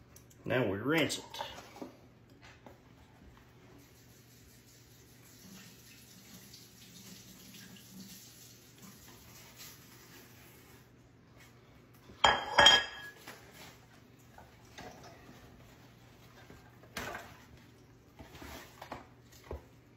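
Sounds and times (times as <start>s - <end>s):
running water from tap: 3.8s - 10.8s
ceramic plate clattering: 12.2s - 13.3s.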